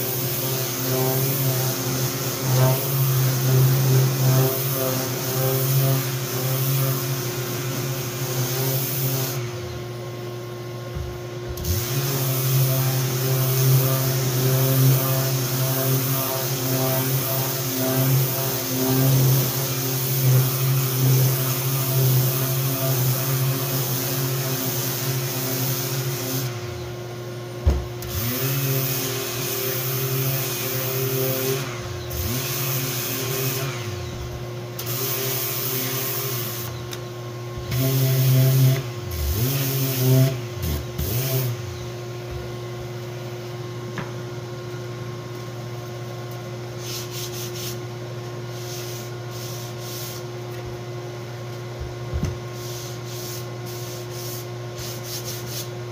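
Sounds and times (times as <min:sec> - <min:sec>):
orbital sander on wood: 0:00.0 - 0:42.5
dust extractor drone: 0:00.0 - 0:44.1.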